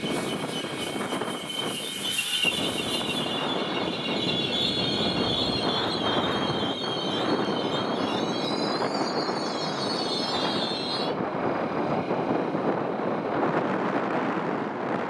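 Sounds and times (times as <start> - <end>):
high-pitched wheel squeal: 0.0 - 13.3
train wheels rolling on rails: 0.0 - 15.0.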